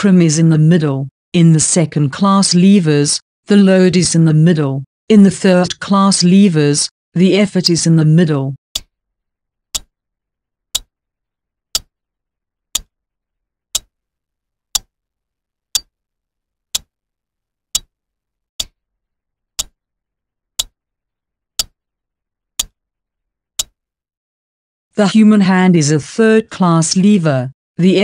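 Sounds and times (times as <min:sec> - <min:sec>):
clock ticking: 0:08.7 - 0:08.9, 0:09.7 - 0:09.9, 0:10.7 - 0:10.9, 0:11.7 - 0:11.9, 0:12.7 - 0:12.9, 0:13.7 - 0:13.9, 0:14.7 - 0:14.9, 0:18.6 - 0:18.8, 0:19.6 - 0:19.8, 0:20.6 - 0:20.8, 0:21.6 - 0:21.8, 0:22.6 - 0:22.8, 0:23.6 - 0:23.8.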